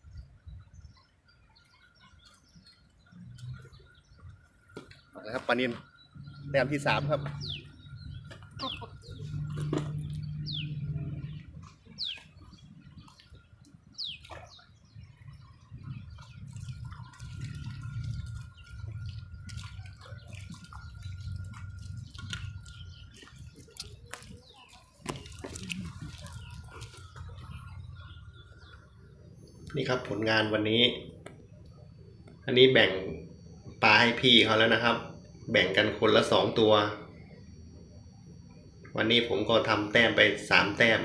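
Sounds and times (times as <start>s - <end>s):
water splashing and dripping: 11.5s - 27.7s.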